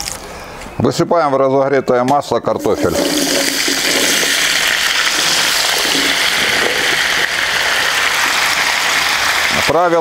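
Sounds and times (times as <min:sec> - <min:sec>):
potatoes sizzling in hot fat: 0:02.8 - 0:10.0.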